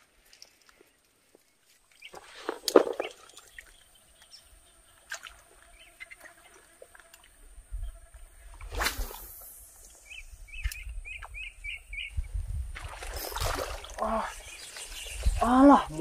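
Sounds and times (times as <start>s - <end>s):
fishing rod swish: 8.6s - 9.4s
faint bird chirps: 9.8s - 12.3s
lure splash: 12.8s - 14.2s.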